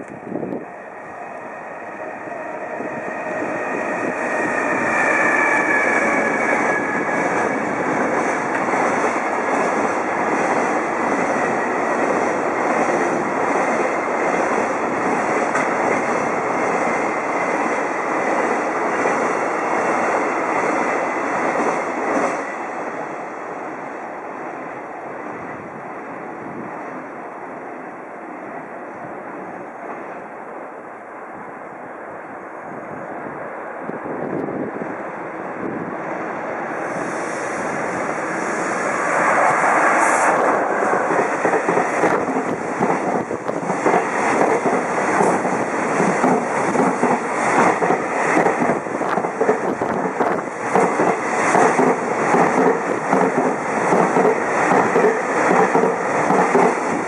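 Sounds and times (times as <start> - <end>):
freight train passing: 0.0 - 57.0
rail-joint clickety-clack: 3.9 - 22.6, 38.9 - 57.0.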